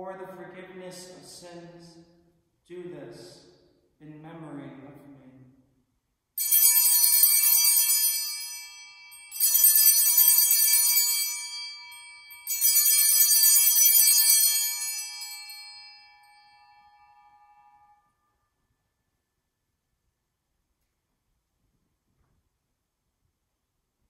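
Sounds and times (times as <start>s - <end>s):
altar bells ringing: 6.4s - 18.2s.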